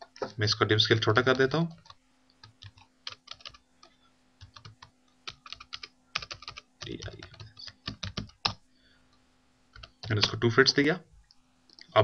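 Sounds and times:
faint steady hum: 0:00.0 - 0:12.0
typing on computer keyboard: 0:01.3 - 0:08.6, 0:09.8 - 0:10.4.

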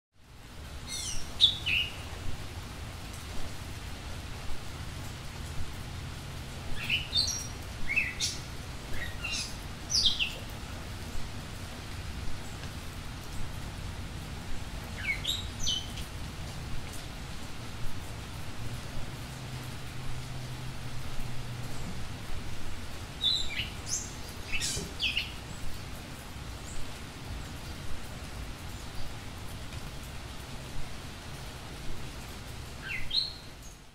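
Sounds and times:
small birds chirping: 0:00.4 - 0:03.2, 0:06.6 - 0:13.6, 0:14.4 - 0:17.0, 0:21.6 - 0:33.9.

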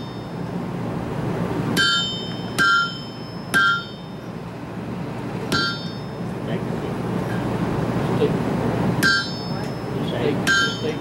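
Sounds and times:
hammer ringing on anvil: 0:00.0 - 0:00.4, 0:01.8 - 0:04.2, 0:05.5 - 0:06.2, 0:09.0 - 0:11.0.

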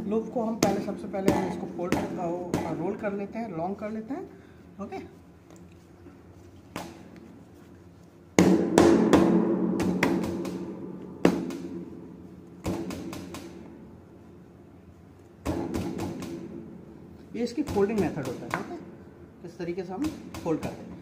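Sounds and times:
sharp drum hits: 0:00.6 - 0:03.0, 0:08.4 - 0:13.6.

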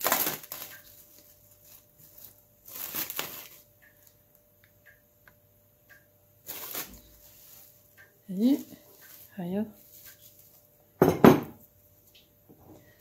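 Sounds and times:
cling film crinkling: 0:00.0 - 0:04.2, 0:06.4 - 0:07.8.

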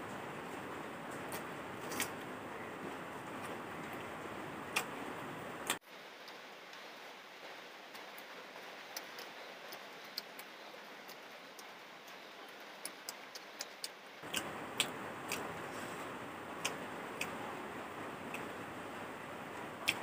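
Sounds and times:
steady hiss: 0:00.0 - 0:20.0
eating clicks and smacks: 0:04.7 - 0:05.0, 0:08.9 - 0:15.5, 0:16.6 - 0:17.4.

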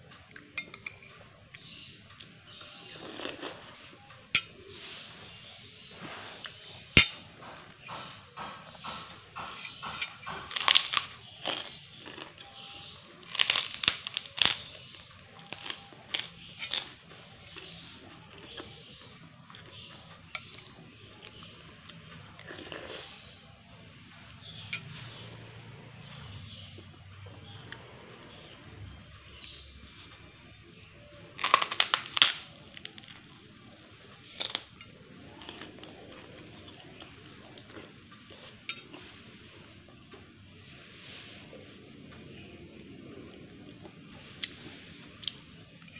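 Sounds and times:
crunching cracker: 0:07.0 - 0:23.3, 0:31.2 - 0:38.4.

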